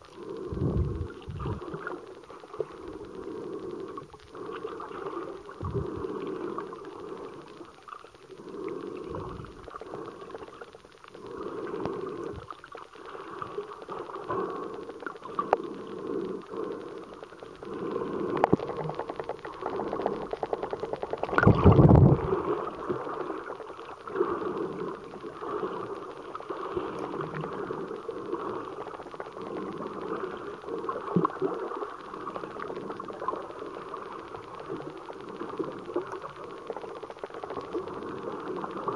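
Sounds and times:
underwater rush: 0:00.0 - 0:38.9
underwater water swishing and gurgling: 0:00.0 - 0:38.9
fast run of ticks: 0:16.7 - 0:22.2.

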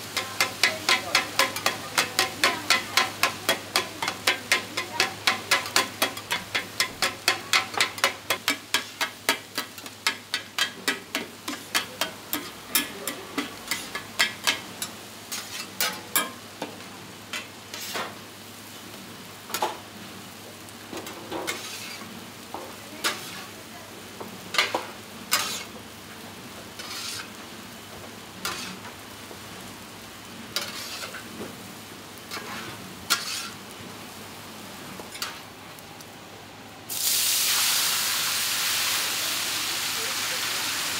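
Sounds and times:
metal spatula clacking on pan: 0:00.1 - 0:16.4
scraping egg into steel tray: 0:26.8 - 0:27.3, 0:32.3 - 0:33.6
steady hiss: 0:29.8 - 0:40.9.

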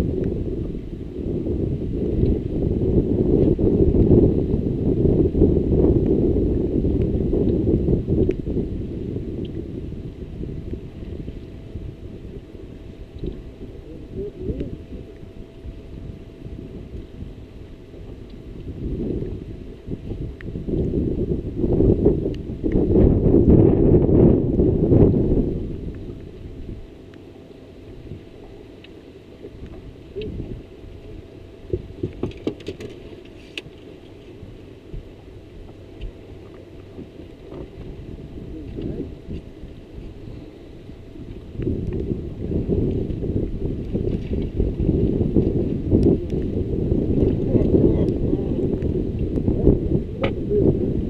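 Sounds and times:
faint steady hum: 0:00.0 - 0:51.0
low rumble: 0:00.0 - 0:51.0
wind buffeting microphone: 0:00.0 - 0:51.0
light ticks: 0:28.8 - 0:30.3.

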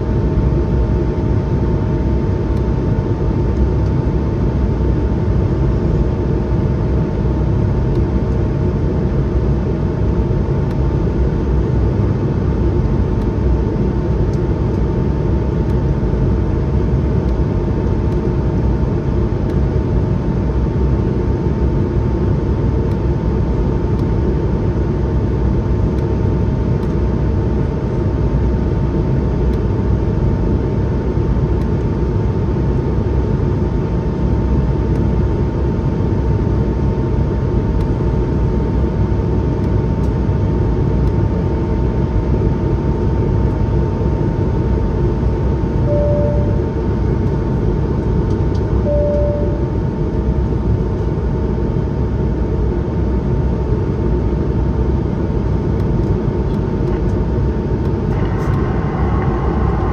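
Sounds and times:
steady hum tones: 0:00.0 - 0:59.9
aircraft cabin engine rumble: 0:52.3 - 0:59.9.

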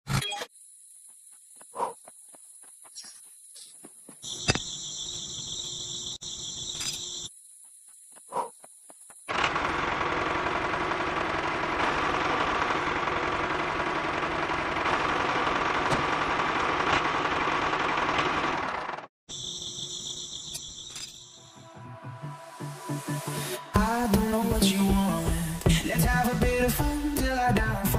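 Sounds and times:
small motor clattering: 0:09.3 - 0:19.1.

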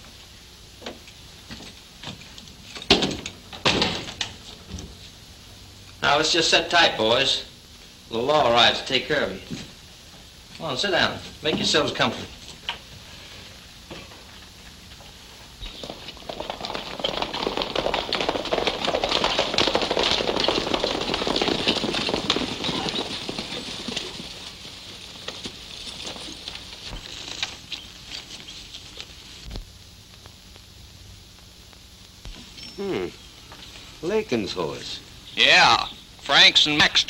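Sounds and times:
horses galloping hoofbeats: 0:10.6 - 0:29.5.

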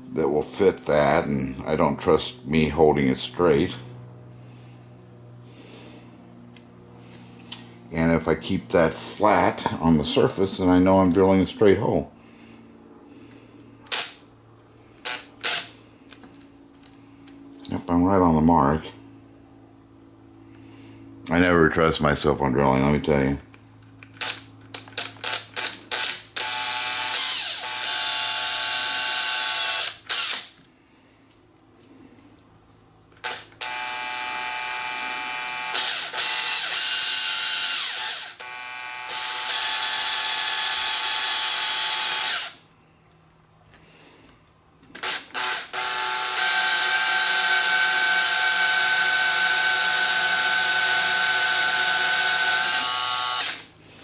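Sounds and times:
electric drill boring metal: 0:13.9 - 0:14.2, 0:15.0 - 0:15.7, 0:25.0 - 0:30.5, 0:33.2 - 0:42.6, 0:45.0 - 0:53.7.

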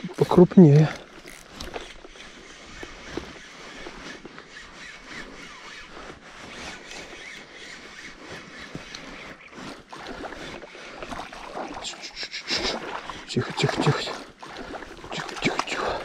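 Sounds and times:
small irregular reel clicks: 0:00.0 - 0:11.2
fishing reel being cranked: 0:00.1 - 0:11.2, 0:11.8 - 0:16.0.

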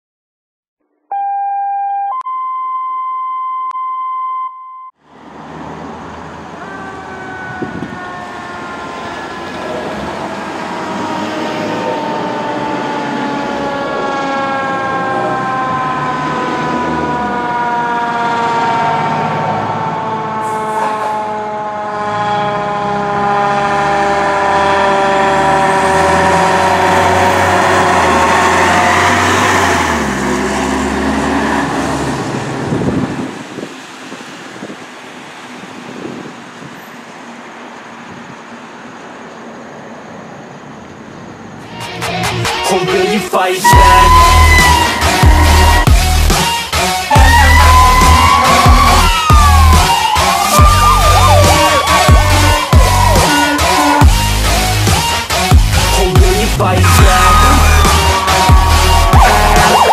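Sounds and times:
fire engine siren: 0:01.1 - 0:03.8, 0:04.4 - 0:40.6, 0:43.6 - 0:59.9
two-tone alert: 0:43.7 - 0:45.4.

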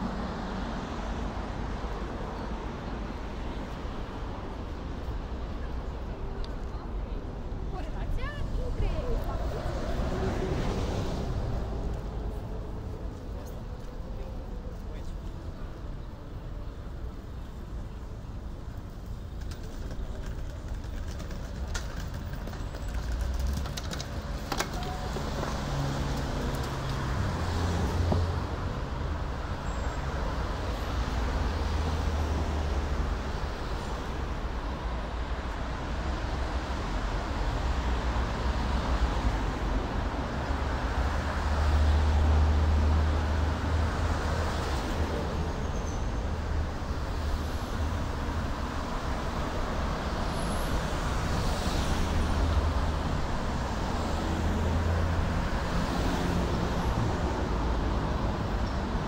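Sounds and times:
cars driving past: 0:08.2 - 0:13.7, 0:22.1 - 0:59.0.

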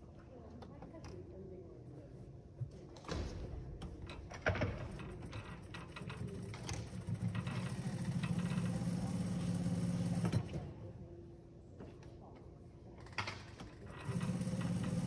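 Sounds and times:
motor running steadily: 0:05.7 - 0:10.9, 0:13.8 - 0:15.0.

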